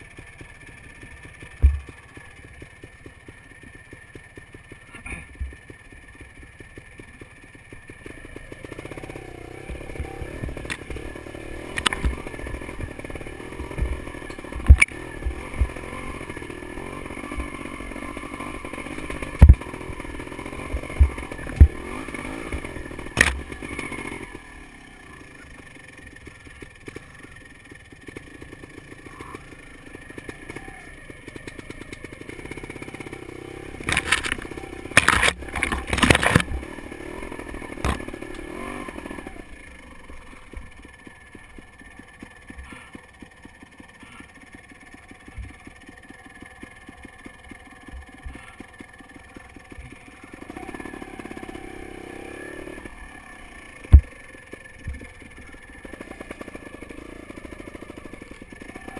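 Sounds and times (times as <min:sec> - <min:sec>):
motorcycle engine running: 0:00.0 - 0:58.9
sharp knocks and clatter: 0:01.4 - 0:03.4, 0:19.1 - 0:20.0, 0:33.8 - 0:36.7.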